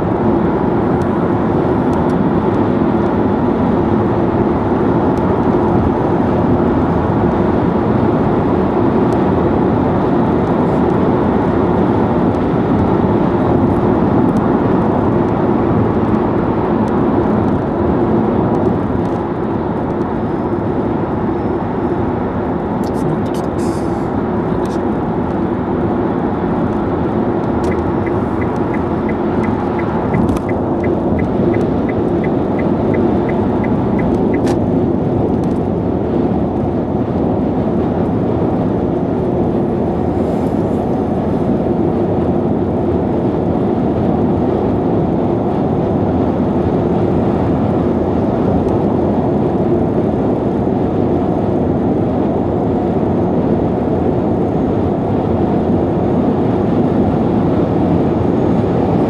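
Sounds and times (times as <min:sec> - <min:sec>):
tyre and wind noise in car: 0:00.0 - 0:59.0
turn signal ticking: 0:27.4 - 0:34.6.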